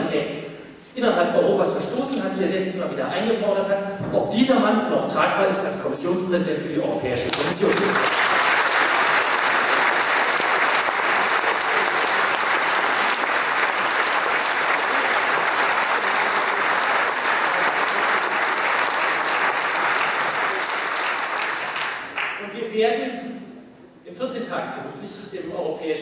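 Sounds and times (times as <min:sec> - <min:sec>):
audience applause: 0:07.3 - 0:22.4.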